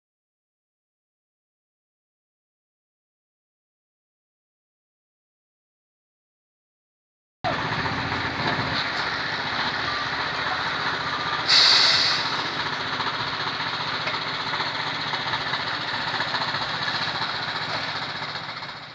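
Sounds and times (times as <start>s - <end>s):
street traffic: 7.4s - 18.9s
truck engine: 7.4s - 18.9s
short loud hiss: 11.5s - 12.4s.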